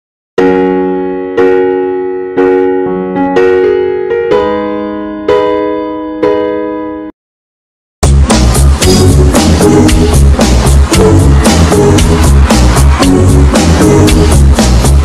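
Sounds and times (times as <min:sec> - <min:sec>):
slow piano chords: 0:00.4 - 0:07.1.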